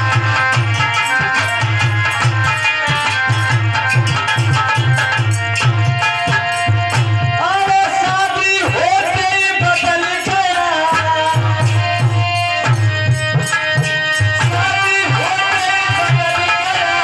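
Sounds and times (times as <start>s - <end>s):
hand-drum beat: 0.0s - 16.5s.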